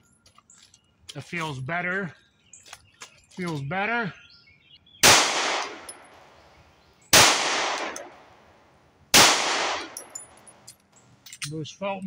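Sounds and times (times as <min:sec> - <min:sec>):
pistol shots: 0:05.0 - 0:06.4, 0:07.1 - 0:08.3, 0:09.1 - 0:10.4.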